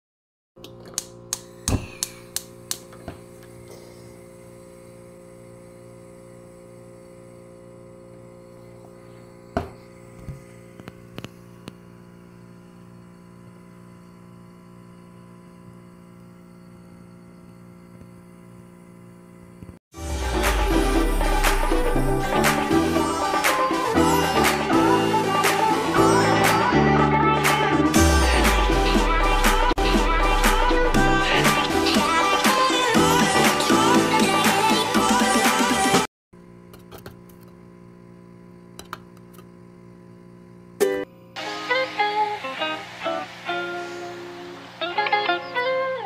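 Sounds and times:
gas stove igniter clicking: 1.0 - 3.1
steady hum: 1.0 - 26.8
music: 20.0 - 36.1, 40.9 - 46.0.

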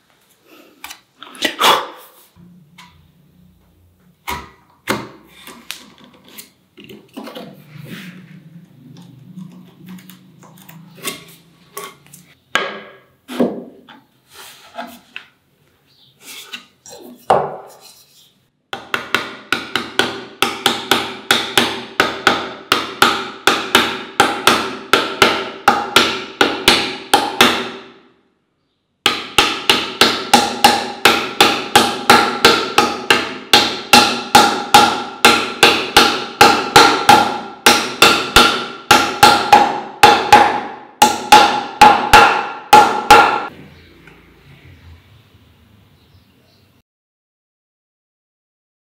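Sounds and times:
mallet tapping wood: 18.8 - 27.8, 29.1 - 43.5.

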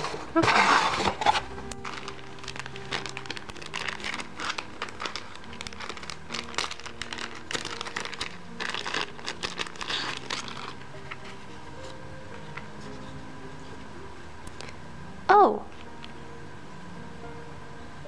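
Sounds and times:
plastic packaging crinkling: 0.0 - 13.1.

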